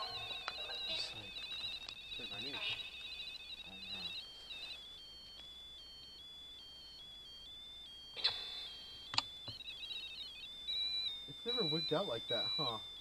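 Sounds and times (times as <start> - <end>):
sharp clicks: 1.2 - 4.1, 9.1 - 10.2.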